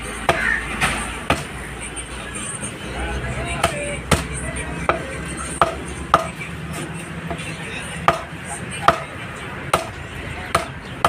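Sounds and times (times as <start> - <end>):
knife chopping on wooden block: 8.1 - 8.3, 10.5 - 10.7.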